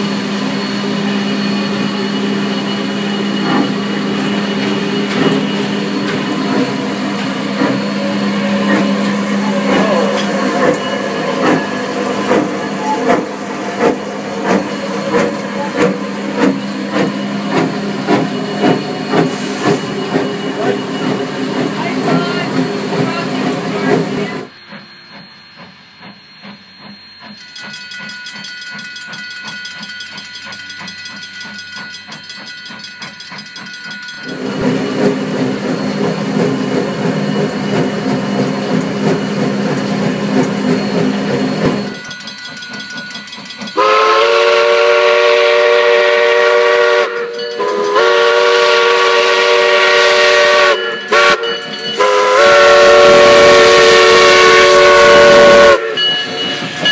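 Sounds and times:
steam hiss: 0:00.0 - 0:26.6
multi-tone steam whistle: 0:00.0 - 0:27.4, 0:43.8 - 0:56.9
steam locomotive running: 0:00.0 - 0:56.9.

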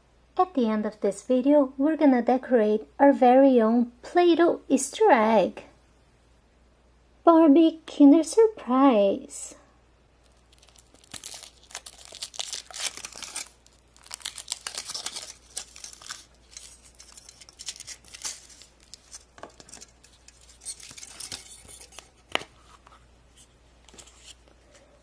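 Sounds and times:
foil wrapper crinkling: 0:10.2 - 0:22.5.

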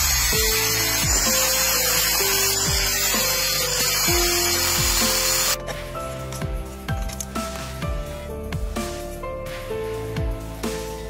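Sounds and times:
angle grinder grinding steel: 0:00.0 - 0:05.6
background music with beat: 0:00.0 - 0:11.0.

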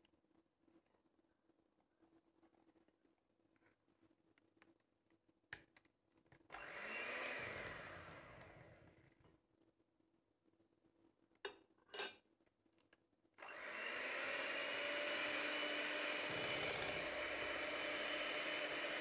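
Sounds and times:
electric hand mixer running: 0:06.5 - 0:08.8, 0:13.4 - 0:19.0.

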